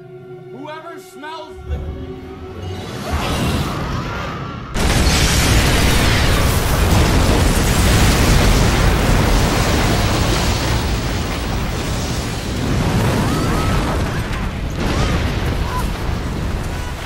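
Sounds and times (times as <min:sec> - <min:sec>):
house explosion: 0:04.8 - 0:17.0.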